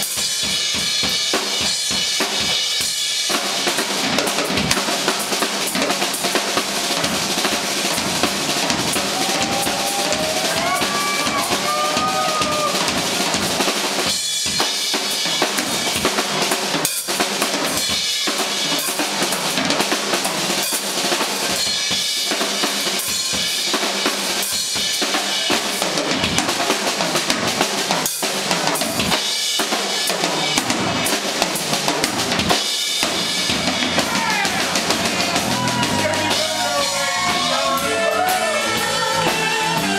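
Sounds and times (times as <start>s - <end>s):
drum kit solo: 0.0s - 39.9s.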